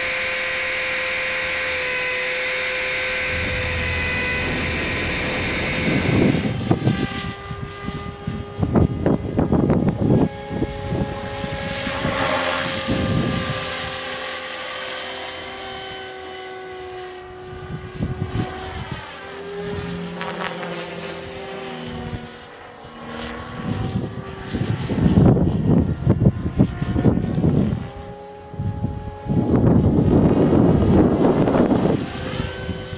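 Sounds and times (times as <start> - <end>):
rc helicopter motor whine: 0.0 - 32.9
wind rumbling on microphone: 1.6 - 14.4, 23.4 - 32.9.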